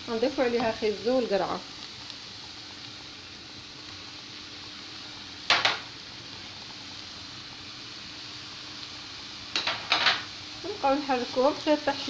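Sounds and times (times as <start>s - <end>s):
vegetables sizzling in a frying pan: 0.0s - 12.0s
clatter against pan: 5.5s - 5.9s, 9.5s - 10.3s.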